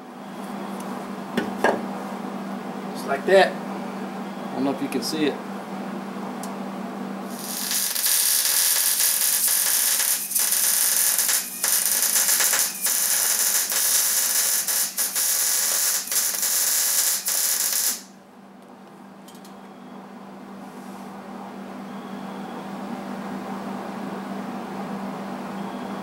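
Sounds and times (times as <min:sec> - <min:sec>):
welding arc crackling: 0:07.3 - 0:18.2.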